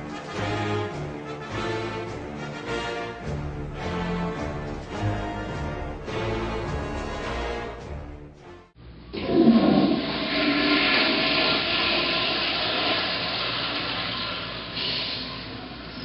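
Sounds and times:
toilet flushing: 9.1s - 16.0s.

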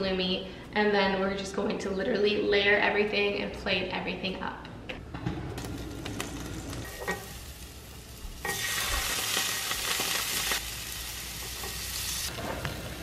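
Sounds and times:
cheese sizzling on a griddle: 6.0s - 13.0s.

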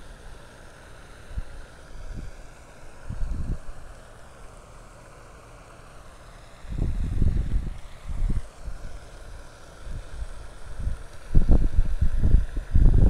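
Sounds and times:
faint steady hiss: 0.0s - 13.0s
wind buffeting microphone: 3.1s - 3.8s, 6.7s - 9.0s, 9.9s - 13.0s.

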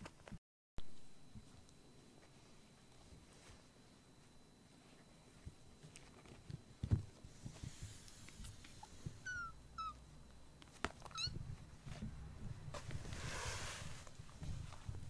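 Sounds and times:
kittens scuffling: 2.0s - 15.0s
kittens mewing squeaks: 8.8s - 10.0s, 11.0s - 11.4s.

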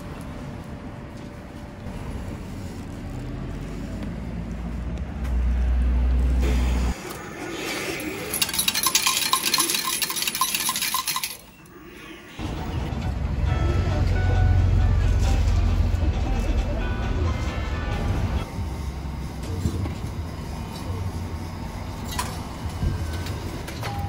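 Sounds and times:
coins clinking into metal tray: 8.3s - 11.5s.

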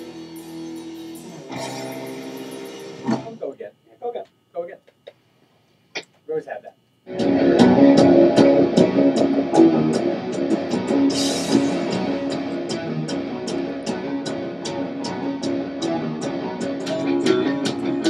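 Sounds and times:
rock music over speakers: 0.0s - 3.4s, 7.1s - 18.0s.

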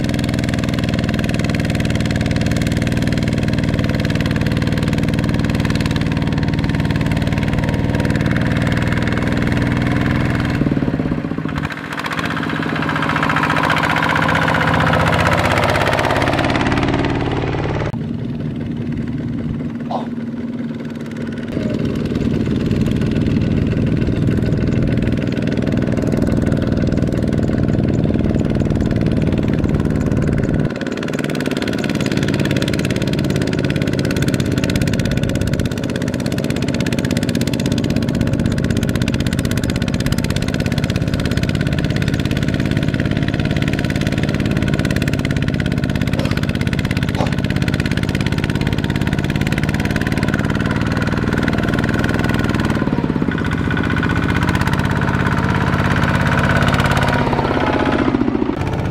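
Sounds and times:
diesel tractor engine running: 0.0s - 58.9s.

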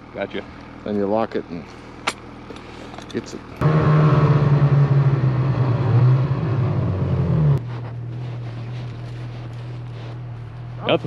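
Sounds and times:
snowmobile engine drone: 3.6s - 11.0s.

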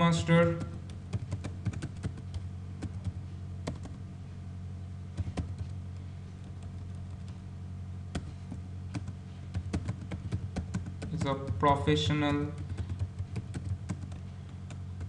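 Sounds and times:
steady low hum: 0.0s - 15.0s
keyboard keys clicking: 0.6s - 4.0s, 5.2s - 5.8s, 8.1s - 11.7s, 12.5s - 15.0s.

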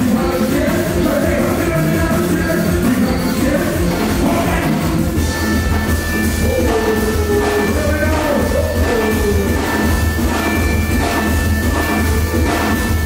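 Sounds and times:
live band music: 0.0s - 13.0s
person singing into microphone: 6.2s - 10.2s.

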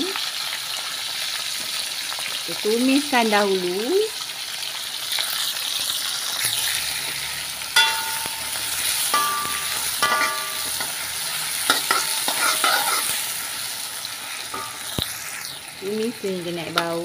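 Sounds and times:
aromatics sizzling in hot oil: 0.0s - 17.0s
metal spatula scraping a wok: 6.4s - 15.6s.

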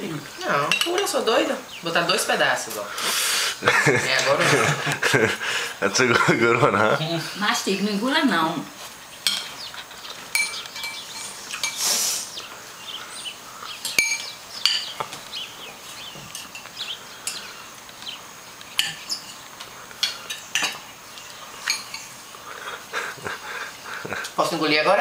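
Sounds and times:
forks clinking on plates: 0.7s - 1.2s, 9.2s - 11.9s, 13.8s - 15.2s, 16.2s - 17.5s, 18.8s - 20.9s, 21.6s - 22.2s.

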